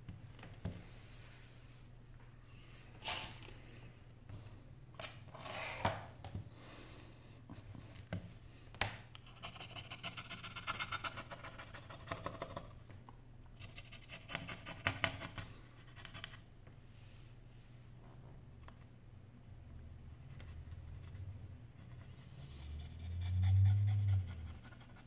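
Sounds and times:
toothpick scratching: 9.2s - 12.6s.

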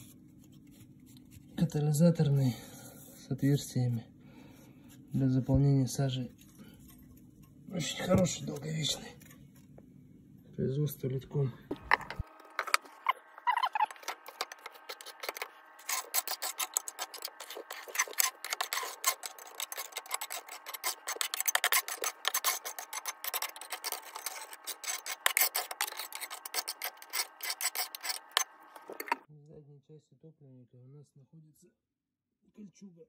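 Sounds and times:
tools scraping soot off brick: 12.6s - 29.3s.

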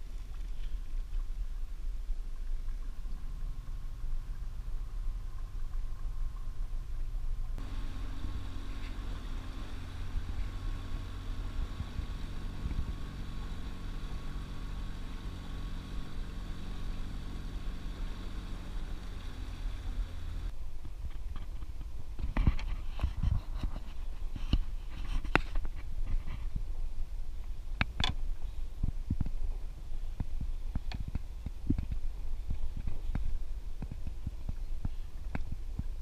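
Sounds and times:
water rushing along hull: 0.0s - 20.6s
outboard motor running: 7.6s - 20.5s.

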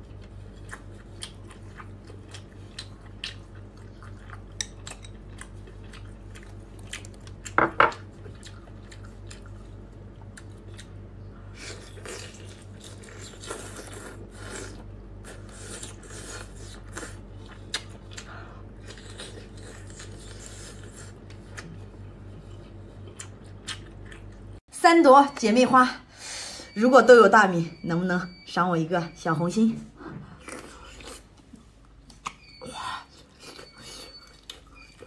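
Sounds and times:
chewing and slurping noodles: 0.0s - 7.5s, 11.6s - 24.3s, 30.3s - 35.0s.

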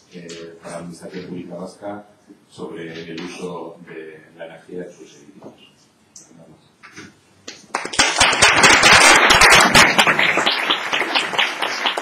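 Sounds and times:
audience applauding: 7.7s - 12.0s.

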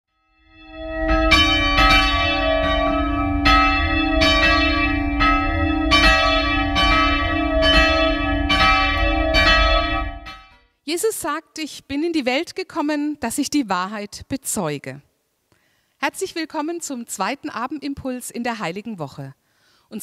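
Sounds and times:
church bells ringing: 0.3s - 10.6s.

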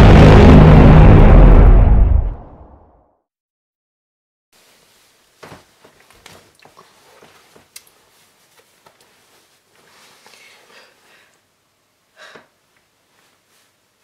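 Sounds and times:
soft clicks and rustles: 5.4s - 10.6s.

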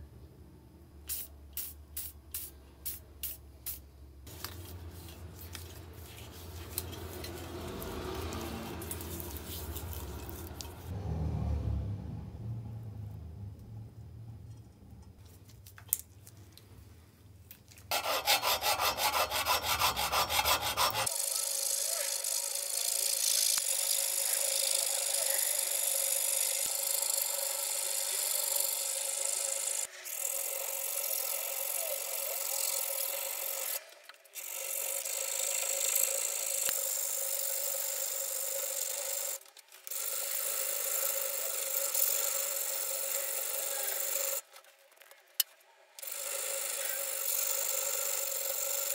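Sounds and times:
file rasping on metal: 17.9s - 25.9s.

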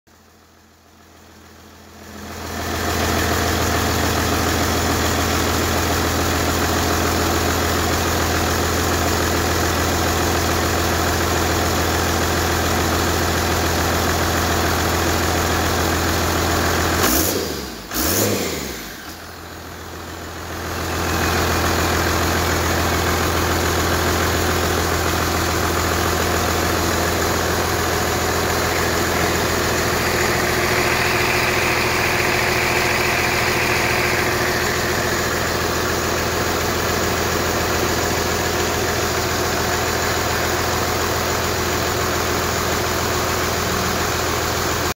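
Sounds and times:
diesel engine idling: 0.2s - 17.0s, 17.6s - 44.9s
diesel engine revving: 16.0s - 44.9s.

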